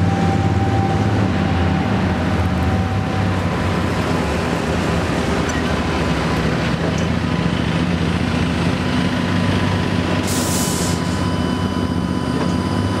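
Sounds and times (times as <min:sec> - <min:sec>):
bus engine running: 0:00.0 - 0:13.0
air brakes hissing: 0:10.2 - 0:11.2.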